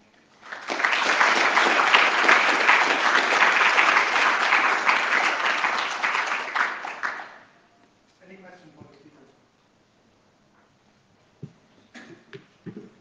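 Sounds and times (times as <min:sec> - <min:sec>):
audience clapping: 0:00.0 - 0:07.6.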